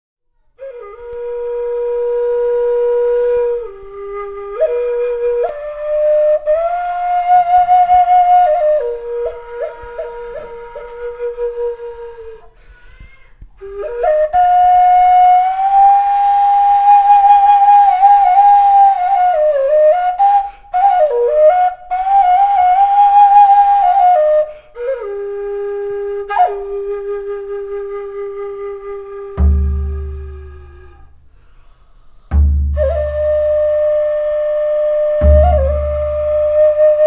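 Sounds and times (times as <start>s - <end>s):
wooden pipe melody: 0.6s - 37.0s
deep drum beat: 29.4s - 30.5s, 32.3s - 33.2s.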